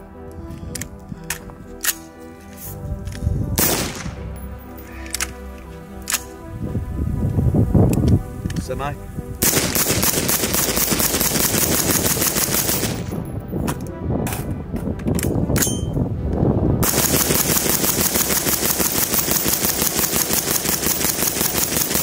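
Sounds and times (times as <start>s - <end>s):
suppressed rifle automatic fire: 3.6s - 4.2s, 9.4s - 13.2s, 16.8s - 22.0s.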